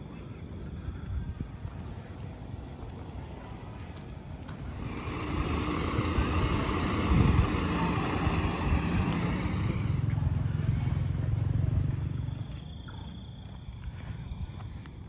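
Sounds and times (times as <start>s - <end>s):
engines rumbling: 0.0s - 15.0s
car driving past: 4.6s - 12.6s.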